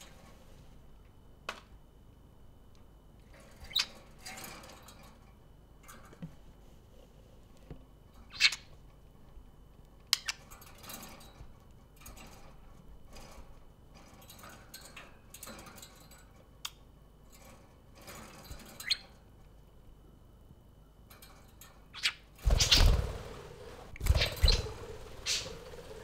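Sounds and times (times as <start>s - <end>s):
budgerigars chirping and chattering: 24.0s - 25.8s.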